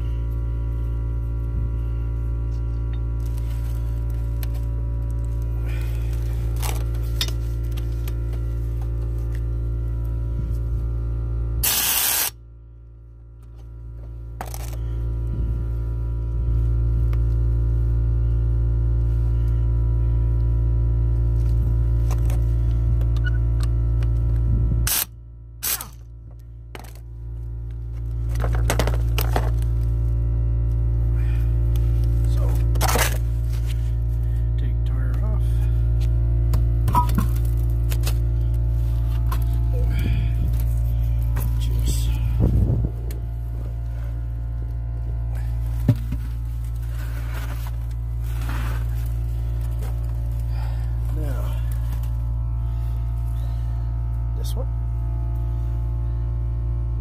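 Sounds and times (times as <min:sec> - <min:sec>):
steady low hum: 0:00.0 - 0:57.0
footsteps crunching on gravel: 0:36.9 - 0:42.8, 0:45.4 - 0:52.2.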